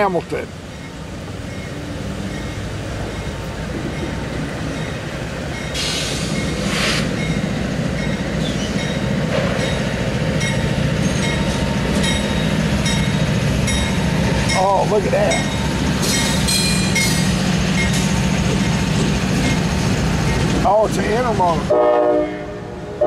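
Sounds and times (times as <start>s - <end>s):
diesel locomotive engine drone: 0.0s - 23.0s
train wheels clicking over rails: 2.2s - 21.6s
brief hiss: 5.8s - 7.1s.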